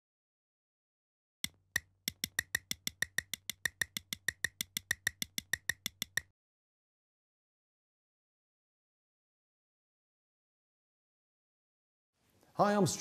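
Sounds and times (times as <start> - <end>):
sharp even clicks: 1.4 - 6.3.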